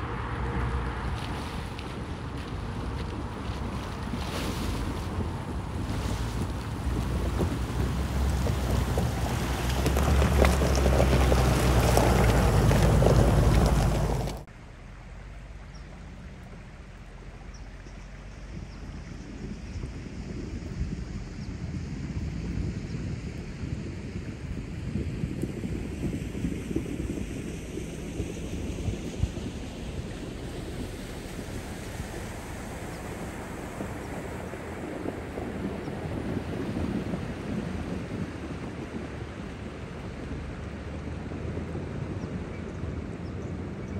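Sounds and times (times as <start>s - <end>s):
wind buffeting microphone: 0.0s - 14.5s, 15.7s - 43.9s
stream water rushing: 0.0s - 14.6s, 28.0s - 42.2s
car engine idling: 5.2s - 18.4s.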